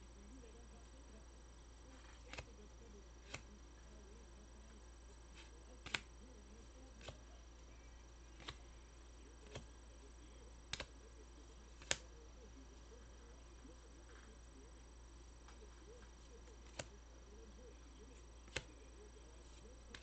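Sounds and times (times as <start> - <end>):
faint steady hum: 0.0 - 20.0
cards and plastic holders clicking: 2.0 - 2.6, 3.2 - 3.6, 5.2 - 6.2, 6.9 - 7.3, 8.3 - 8.7, 9.4 - 9.8, 10.5 - 11.0, 11.7 - 12.2, 15.4 - 17.1, 18.1 - 20.0.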